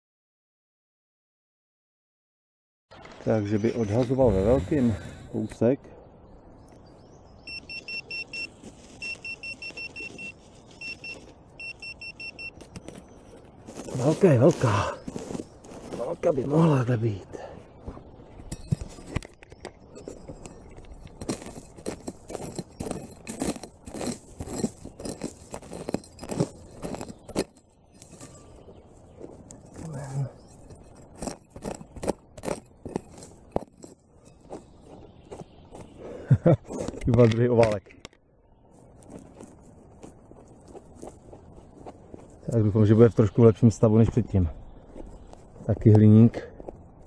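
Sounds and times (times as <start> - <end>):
pinpointer beeping in rapid pulses: 7.5 - 12.6
hand shovel digging into soil: 8.6 - 16.6, 20.0 - 35.9.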